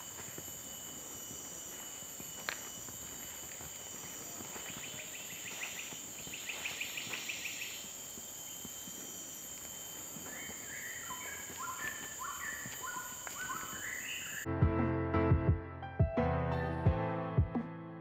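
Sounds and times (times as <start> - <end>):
high insect drone: 0.0 - 14.5
birds calling: 1.5 - 14.5.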